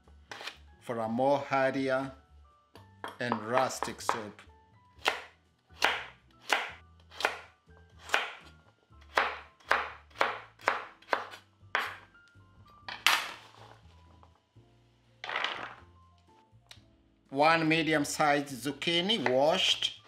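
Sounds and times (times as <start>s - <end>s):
knife chopping on cutting board: 3.1s - 4.3s, 5.0s - 8.5s, 9.1s - 12.0s.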